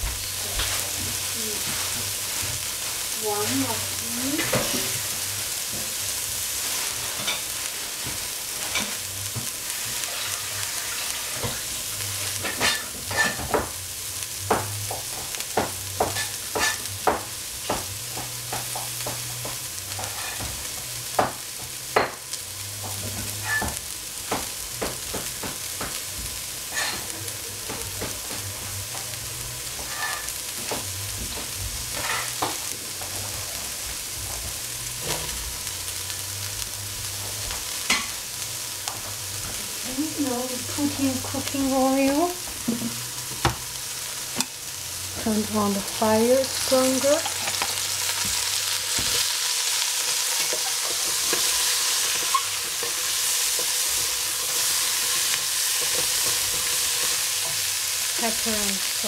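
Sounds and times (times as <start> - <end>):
vegetables sizzling in oil: 0.0 - 59.0
oil crackling and popping: 46.4 - 59.0.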